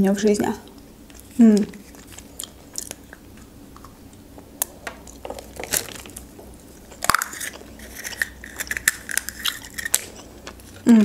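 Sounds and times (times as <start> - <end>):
chewing chocolate shell: 5.1 - 10.9.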